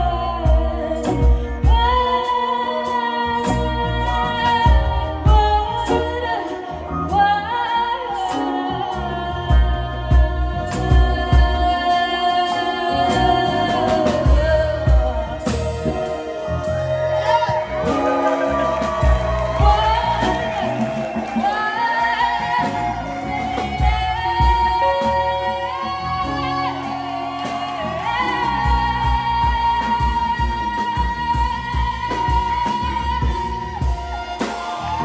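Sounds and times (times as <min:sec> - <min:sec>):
steady drum beat: 0:00.0 - 0:02.3, 0:09.5 - 0:35.0
keyboard: 0:00.0 - 0:35.0
woman singing: 0:00.0 - 0:35.0
violins: 0:14.7 - 0:30.8.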